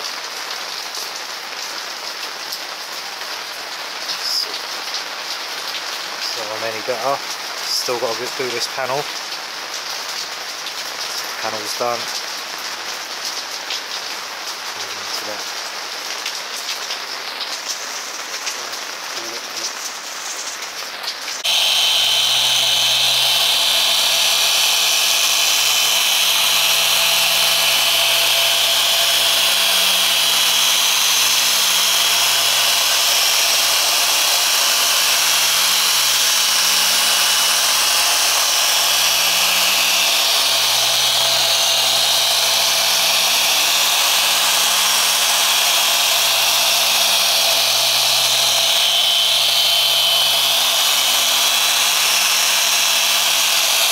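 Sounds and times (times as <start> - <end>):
polisher motor whine: 21.4 - 53.9.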